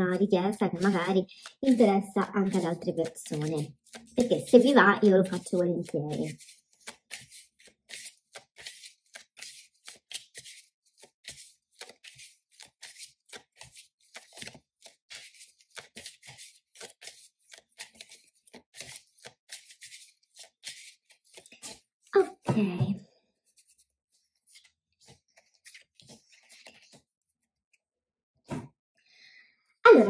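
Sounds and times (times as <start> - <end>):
cards being shuffled: 0.1 - 22.2, 23.5 - 27.1.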